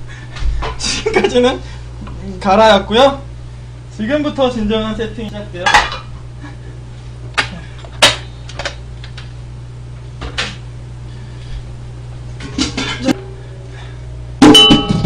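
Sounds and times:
steady low hum: 0:00.0 - 0:15.0
metal clatter with ringing: 0:14.4 - 0:15.0.

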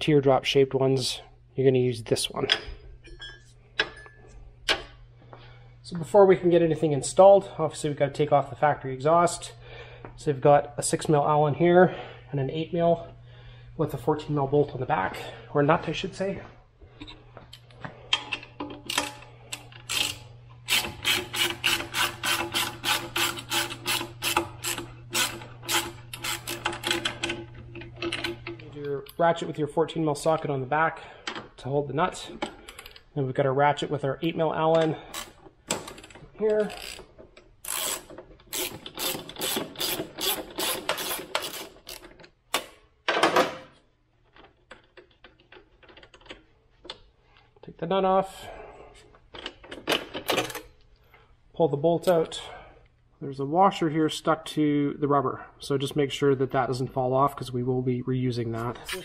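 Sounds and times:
socket ratchet clicking: 0:18.8 - 0:28.6, 0:35.1 - 0:42.7.

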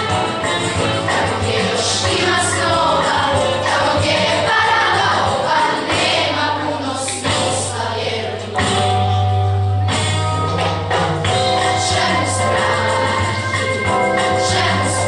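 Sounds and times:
children's choir singing: 0:00.9 - 0:08.7, 0:10.9 - 0:15.0
low bass accompaniment: 0:08.6 - 0:15.0.

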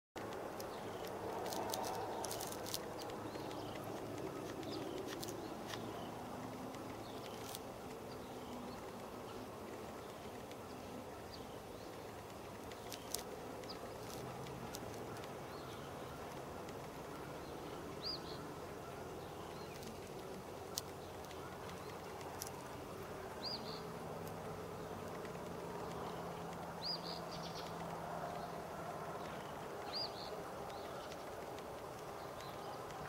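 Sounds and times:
sharp clicks: 0:00.2 - 0:10.8, 0:11.8 - 0:17.3, 0:29.2 - 0:33.0.

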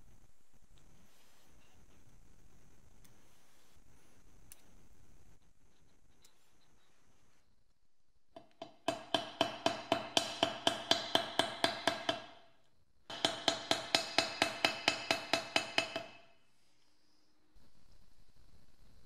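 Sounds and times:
hammer tapping metal: 0:08.4 - 0:12.5, 0:13.1 - 0:16.4.

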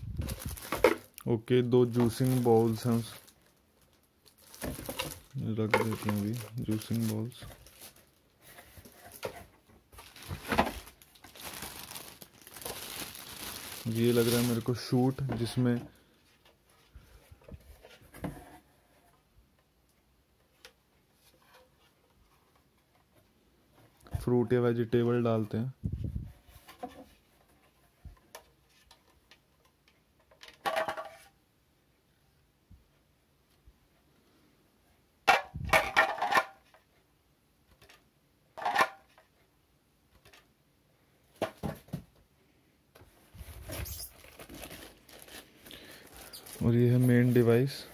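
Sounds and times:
plastic wrapping rustling: 0:00.0 - 0:15.8, 0:43.1 - 0:47.9
plastic parts knocking and clattering: 0:00.2 - 0:01.2, 0:01.9 - 0:03.3, 0:04.3 - 0:08.0, 0:08.7 - 0:15.9, 0:28.1 - 0:31.3, 0:35.2 - 0:36.8, 0:37.7 - 0:39.3, 0:41.4 - 0:42.2.

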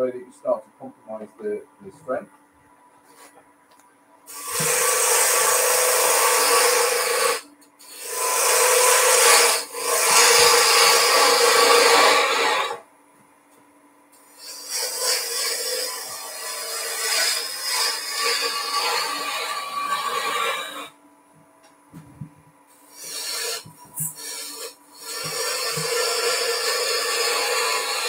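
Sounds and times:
lathe tool rasping on wood: 0:04.3 - 0:12.8, 0:14.4 - 0:20.9, 0:22.9 - 0:28.0.

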